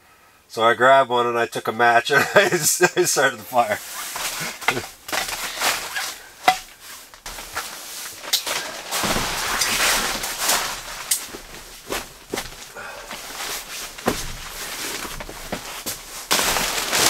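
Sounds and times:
camp gear knocks and clatters: 4.1s - 17.0s.

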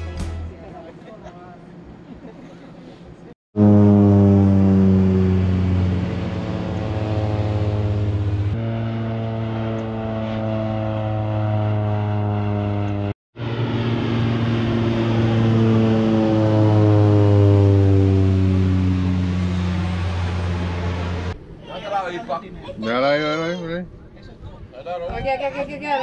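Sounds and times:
loud engine drone: 3.6s - 21.5s.

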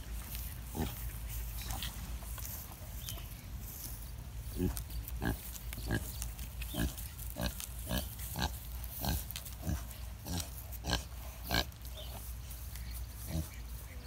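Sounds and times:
pig grunting: 0.6s - 2.0s, 4.5s - 12.1s.

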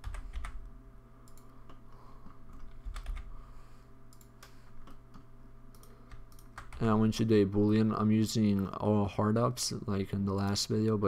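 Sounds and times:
faint steady hum: 0.0s - 11.0s
computer keyboard key presses: 2.6s - 3.3s.

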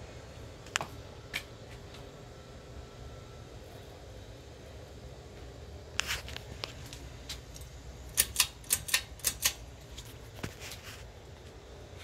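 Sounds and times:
ceiling fan running: 0.0s - 12.0s
sharp irregular clicks: 7.6s - 9.6s.

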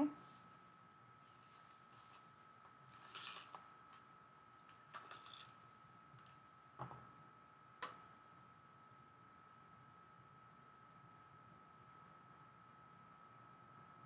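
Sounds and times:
faint high whine: 0.0s - 14.0s
tape runner rasping on paper: 2.9s - 3.6s, 5.0s - 5.6s.

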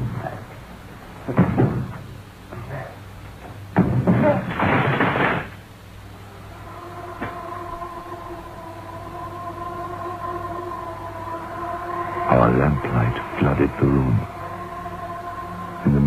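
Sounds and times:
door crashing open: 3.8s - 5.6s
held music chord: 6.0s - 16.0s.

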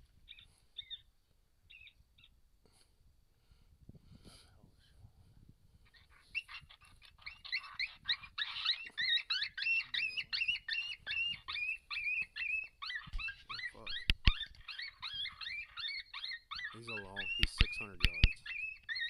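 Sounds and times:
high-pitched yelps: 5.9s - 19.0s.

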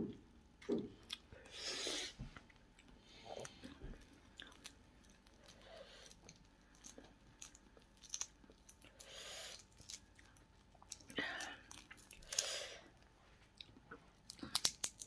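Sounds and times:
person chewing: 0.1s - 15.0s
prawn shell being peeled: 3.4s - 12.5s, 14.2s - 15.0s.

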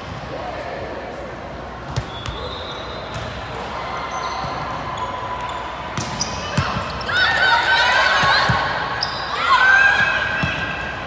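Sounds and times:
volleyball hits: 5.9s - 6.9s.

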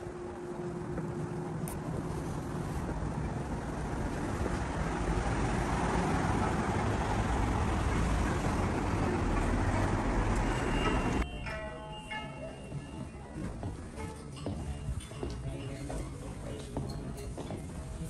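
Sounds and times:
road traffic rumble: 0.0s - 11.5s.

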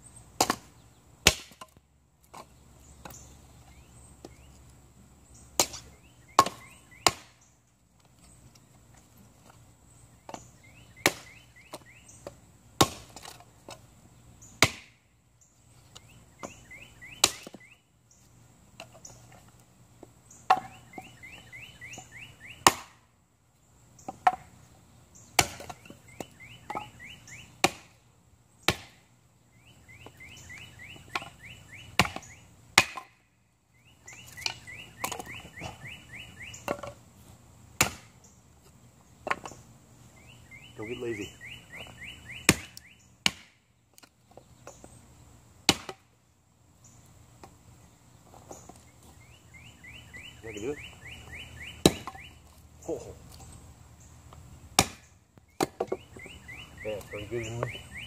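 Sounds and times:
axe chopping kindling on wood: 0.4s - 3.2s, 5.5s - 7.4s, 11.0s - 13.8s, 14.6s - 15.0s, 17.2s - 17.6s, 20.0s - 21.1s, 22.6s - 23.0s, 24.1s - 24.5s, 25.3s - 27.0s, 27.6s - 28.0s, 28.6s - 29.0s, 31.0s - 33.2s, 37.8s - 38.2s, 42.5s - 44.1s, 45.6s - 46.1s, 51.8s - 52.3s, 54.7s - 56.0s.

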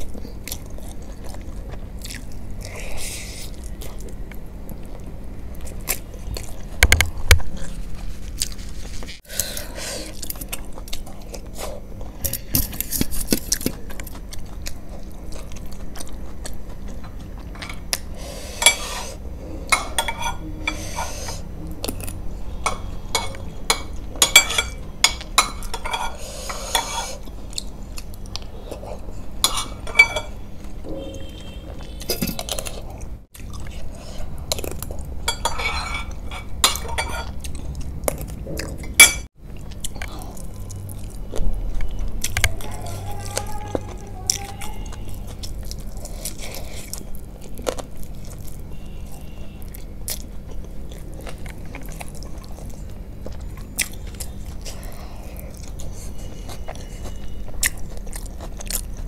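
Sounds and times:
chewing: 0.0s - 6.8s, 7.4s - 20.8s, 25.1s - 59.0s
metal spoon scraping glass bowl: 18.6s - 21.5s, 22.6s - 24.8s, 25.4s - 27.2s, 35.3s - 37.4s.

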